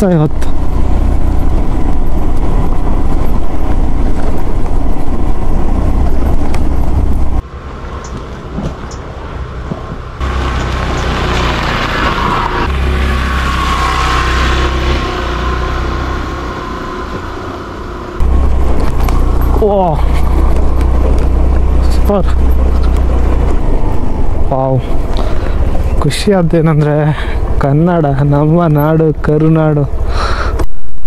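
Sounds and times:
wind rumble on microphone: 0.3s - 7.4s, 8.0s - 12.7s, 18.2s - 27.6s
scooter engine on dirt track: 10.2s - 30.1s.

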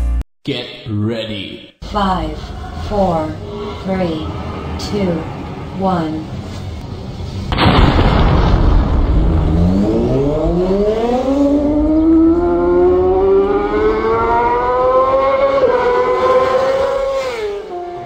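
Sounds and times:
siren wailing: 2.2s - 6.5s, 9.6s - 18.0s
loud burst of noise: 6.9s - 11.0s.

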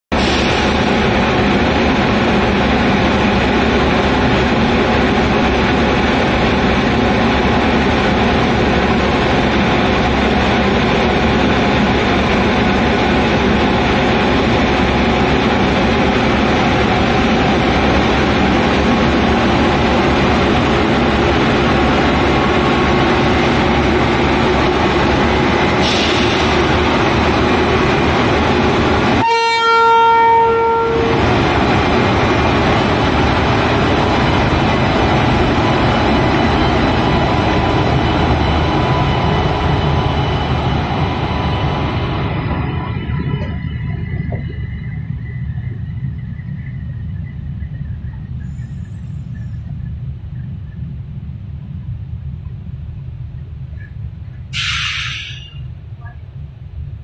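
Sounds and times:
electric locomotives rolling past: 0.1s - 57.0s
hiss: 0.2s - 1.4s, 25.7s - 27.0s, 48.4s - 49.6s, 54.5s - 55.6s.

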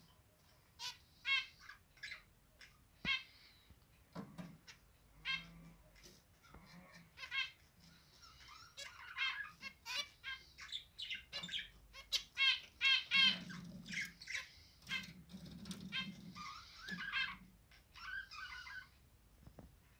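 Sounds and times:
finches singing and calling: 7.2s - 18.9s.

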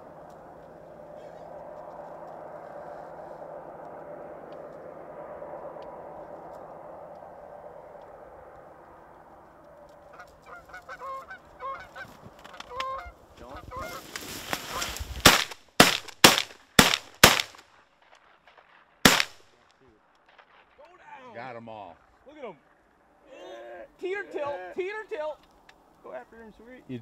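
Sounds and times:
geese honking: 0.0s - 1.6s, 9.8s - 15.0s
rustle: 9.1s - 20.8s
shotgun shots: 15.2s - 17.7s, 18.4s - 19.6s.

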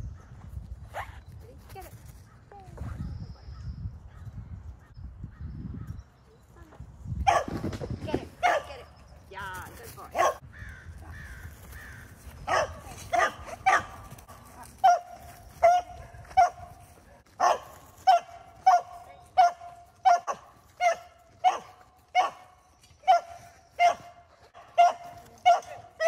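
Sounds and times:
dog barking sharply: 7.3s - 7.5s, 10.2s - 10.4s, 12.5s - 14.0s, 17.4s - 22.4s.

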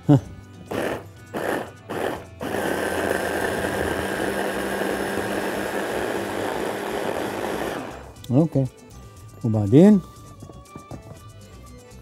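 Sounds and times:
stick blender whirring: 0.6s - 8.3s.

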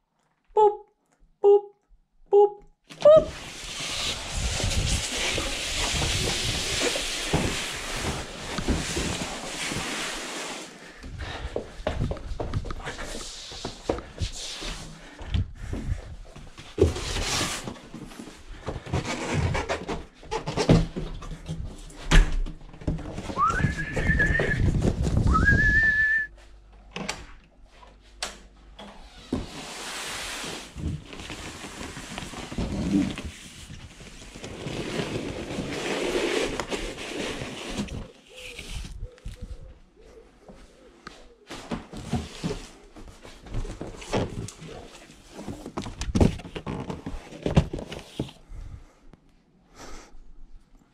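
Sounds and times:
cardboard box rustling and scraping: 3.3s - 10.8s, 29.3s - 39.0s.

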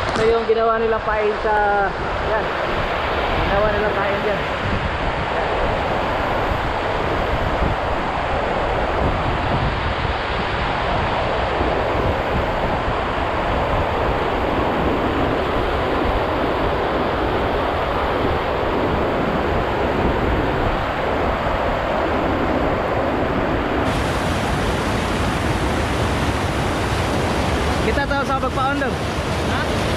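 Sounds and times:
river water pouring over weir: 0.0s - 29.9s.

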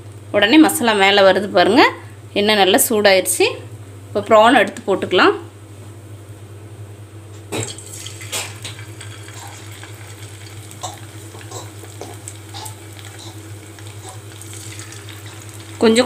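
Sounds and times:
steady low hum: 0.0s - 16.0s
prawns sizzling in hot oil: 7.6s - 16.0s.

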